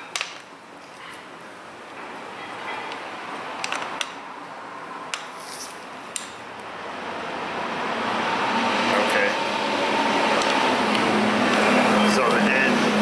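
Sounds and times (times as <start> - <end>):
metal scrape: 5.4 - 5.8.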